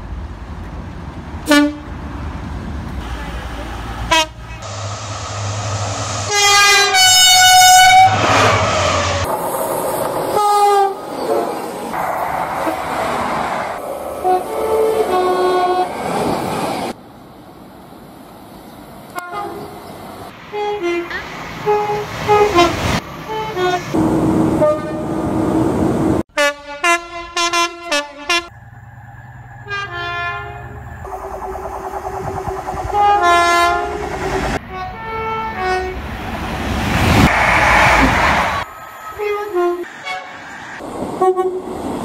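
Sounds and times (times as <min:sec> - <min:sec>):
trains running past: 0:00.0 - 0:26.2, 0:28.3 - 0:42.0
train horns: 0:01.4 - 0:02.0, 0:03.0 - 0:04.9, 0:06.2 - 0:09.3, 0:10.3 - 0:11.6, 0:14.2 - 0:16.0, 0:19.1 - 0:19.8, 0:20.5 - 0:25.6, 0:26.3 - 0:28.5, 0:29.6 - 0:30.9, 0:32.9 - 0:36.1, 0:39.1 - 0:40.5, 0:41.2 - 0:41.7.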